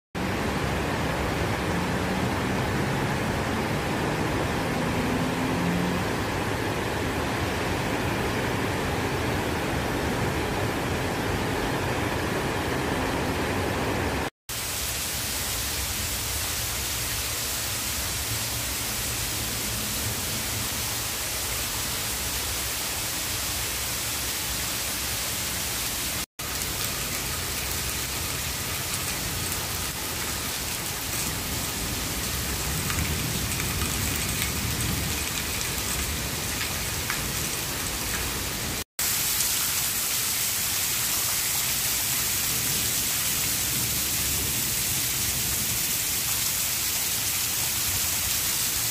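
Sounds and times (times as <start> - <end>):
heavy rain: 0.2 - 48.9.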